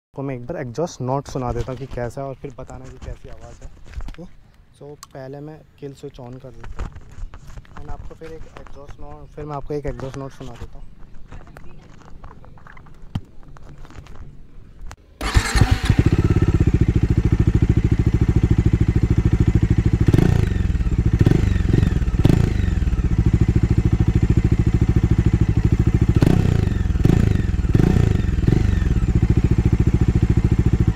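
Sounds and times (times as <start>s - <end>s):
motorcycle engine starting: 15.1s - 30.9s
motorcycle engine idling: 15.2s - 30.9s
motorcycle engine revving: 15.2s - 30.9s.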